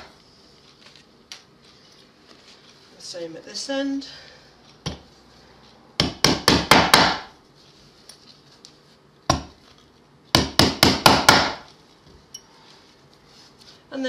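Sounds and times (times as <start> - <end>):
tack hammer hitting tacks into wood: 6.0 - 7.3, 9.3 - 9.6, 10.3 - 11.7.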